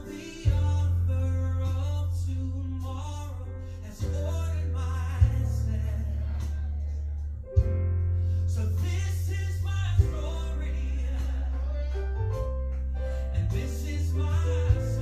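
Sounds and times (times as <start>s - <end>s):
song with singing bass and guitar: 0.0s - 15.0s.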